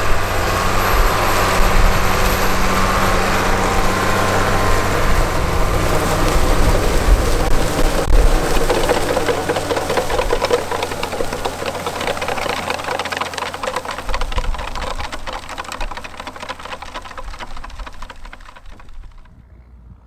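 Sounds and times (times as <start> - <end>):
tractor diesel engine running: 0.0 - 19.4
manure spreader beaters clattering: 5.4 - 19.3.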